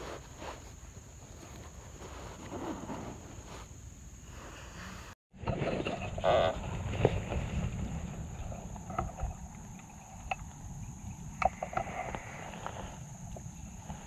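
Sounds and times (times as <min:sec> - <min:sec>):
wind rumble on microphone: 0:04.2 - 0:14.0.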